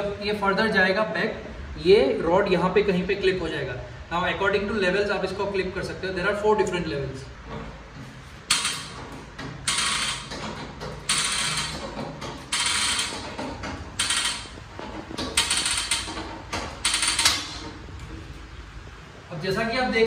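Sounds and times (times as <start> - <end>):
hydraulic jack pumping: 8.4 - 18.1
lift frame ratcheting: 8.4 - 18.4.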